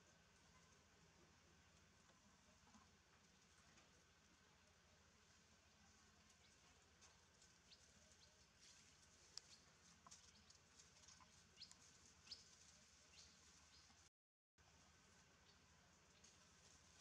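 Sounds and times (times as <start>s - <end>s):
high chirps and ticks: 9.3s - 13.9s.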